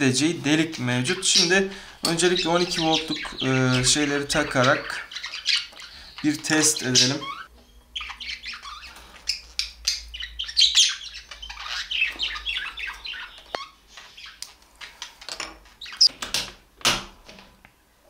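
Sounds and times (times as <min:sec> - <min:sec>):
birds chirping: 0:00.0 - 0:16.1.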